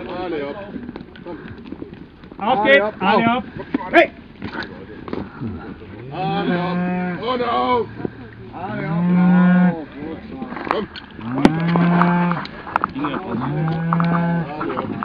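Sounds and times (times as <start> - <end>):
cattle mooing: 5.4 - 7.6, 8.6 - 9.9, 11.2 - 15.0.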